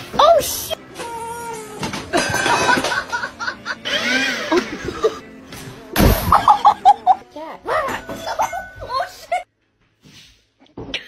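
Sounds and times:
music: 0.0s - 10.0s
people laughing and chuckling: 2.1s - 5.3s, 6.3s - 7.2s.

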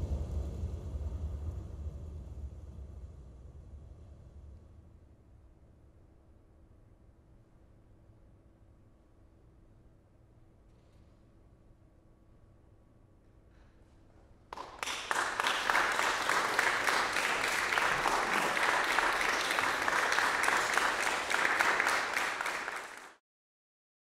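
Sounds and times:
audience applauding: 14.5s - 23.2s.

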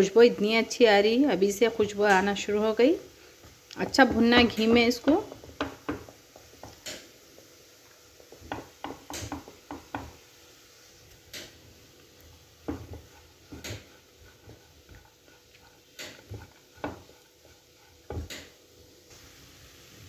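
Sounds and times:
spatula scraping and knocking pan: 3.4s - 10.3s, 11.1s - 18.6s.

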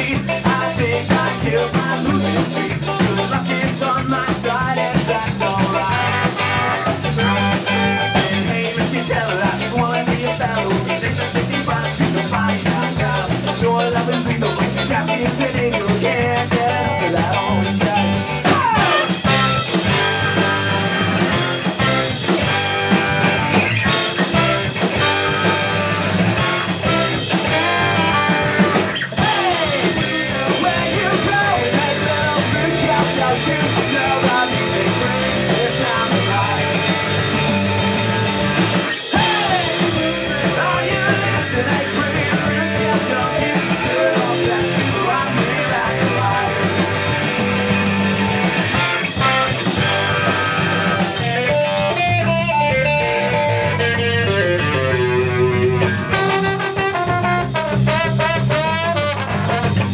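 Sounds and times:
person singing: 0.0s - 37.3s, 38.9s - 47.6s
ska-punk band playing live: 0.0s - 59.9s.

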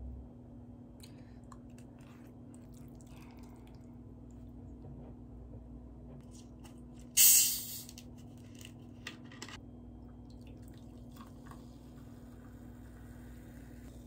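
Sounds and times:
bottle opening with gas hiss: 7.2s - 8.0s.

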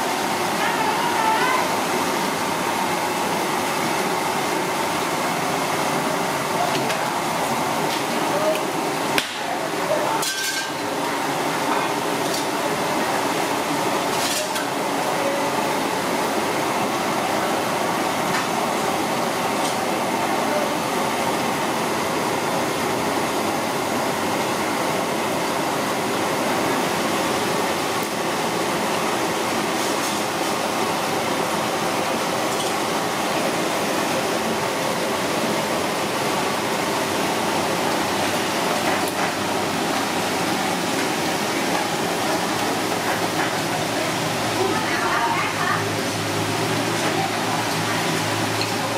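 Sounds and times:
dishes and cutlery clinking: 10.2s - 10.8s.

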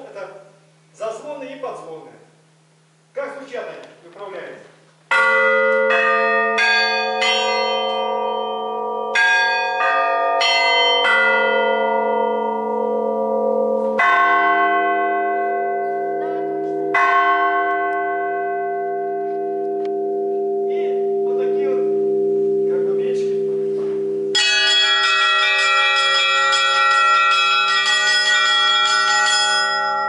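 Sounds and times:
church bells ringing: 5.1s - 30.0s.

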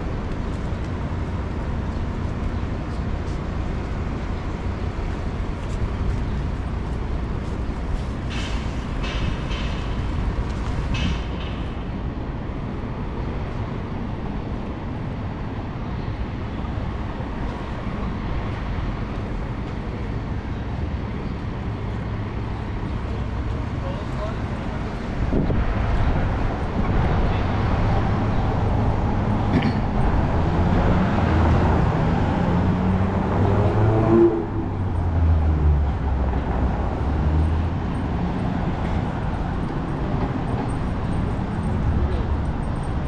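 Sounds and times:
city street traffic: 0.0s - 43.0s.

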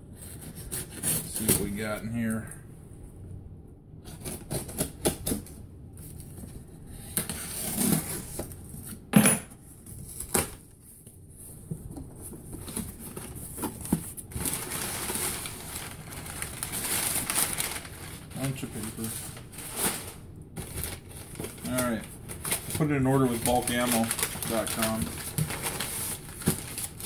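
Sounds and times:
packing paper rustling: 9.9s - 27.0s.

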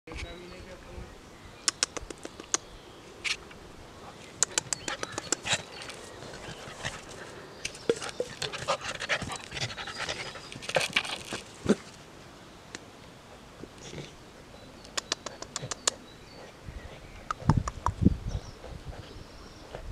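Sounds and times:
puppy mouth clicks: 1.6s - 2.6s, 4.3s - 5.7s, 14.8s - 16.1s, 17.2s - 18.0s.

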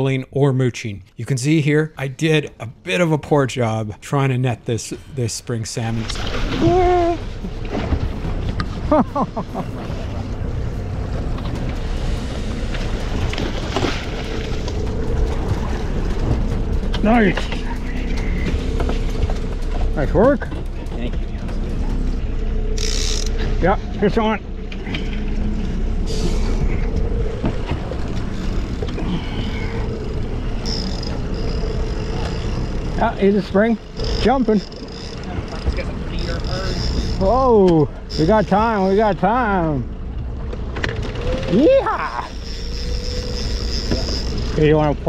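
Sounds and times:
wind: 0.0s - 45.0s
water washing against hull: 5.7s - 45.0s
boat motor running: 6.0s - 45.0s
thin high whine: 28.1s - 39.0s, 42.1s - 44.8s.

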